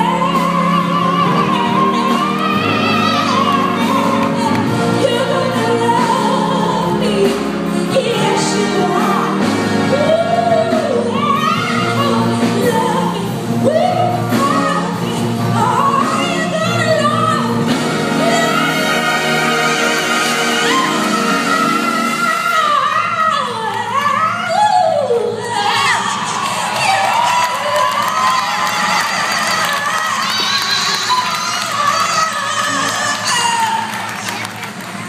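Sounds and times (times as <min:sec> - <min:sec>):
concert band wind and brass chords: 0:00.0 - 0:23.5
woman singing a soul ballad: 0:00.0 - 0:34.4.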